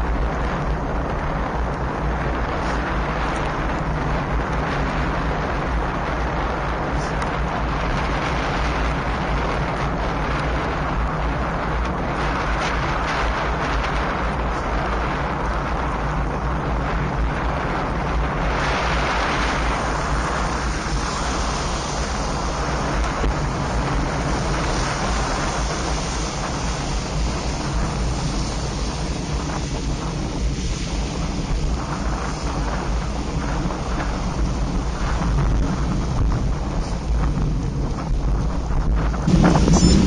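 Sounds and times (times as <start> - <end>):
road noise: 0.0 - 40.0
wind rushing on microphone: 0.0 - 40.0
low steady hum: 37.2 - 40.0.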